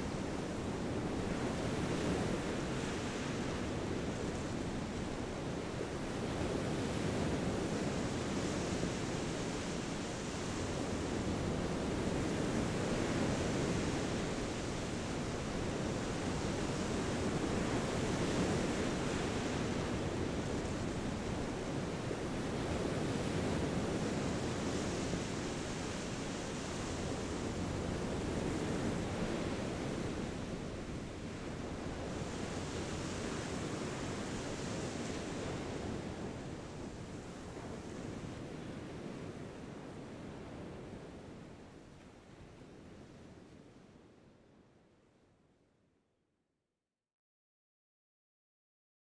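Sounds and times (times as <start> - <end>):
ocean surf on beach: 0.0 - 43.6.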